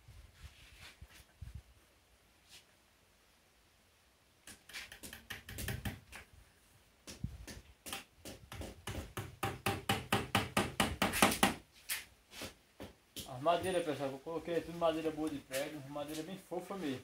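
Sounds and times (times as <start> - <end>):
hammer driving nails into wood: 4.5 - 6.2, 7.1 - 11.6.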